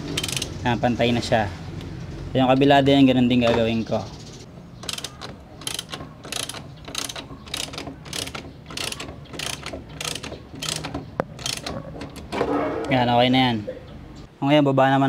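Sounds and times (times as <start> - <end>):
socket ratchet clicking: 0.1 - 0.5, 4.8 - 12.3.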